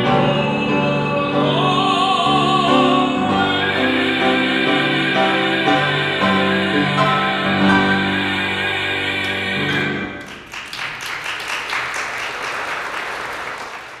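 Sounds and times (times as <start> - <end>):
tenor singing with piano: 0.0 - 10.2
audience applause: 9.7 - 14.0.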